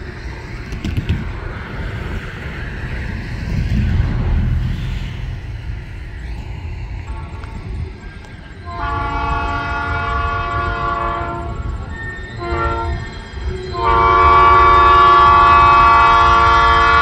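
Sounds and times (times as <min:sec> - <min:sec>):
low rumble: 0:00.0 - 0:10.3
locomotive air horn blasts: 0:08.6 - 0:11.8, 0:12.4 - 0:13.1, 0:13.7 - 0:17.0.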